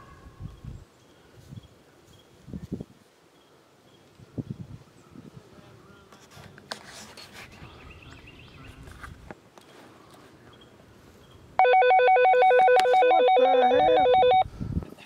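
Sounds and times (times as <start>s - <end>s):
phone ringtone trill: 11.6s - 14.5s.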